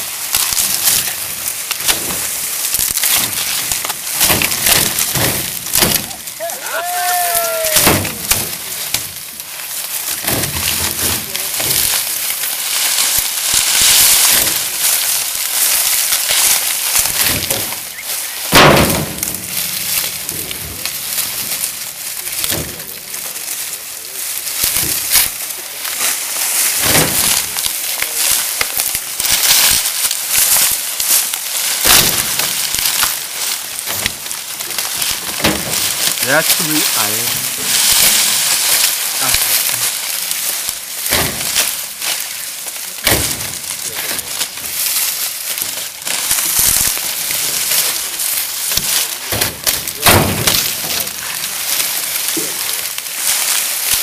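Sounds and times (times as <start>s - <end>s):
dry sugarcane stalks rustling: 0.0s - 54.0s
sharp snaps and knocks: 0.0s - 54.0s.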